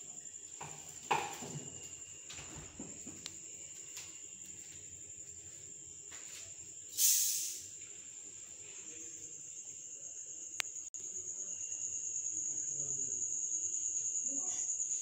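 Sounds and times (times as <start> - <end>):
burst of hiss: 6.9 - 7.8.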